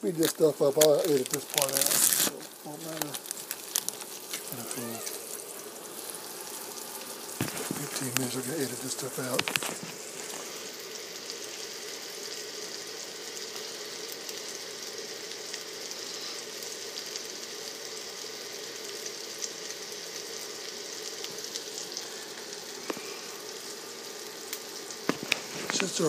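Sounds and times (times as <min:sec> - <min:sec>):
fat popping and crackling: 0:00.0 - 0:10.7, 0:24.5 - 0:26.0
patties sizzling in a pan: 0:00.0 - 0:26.0.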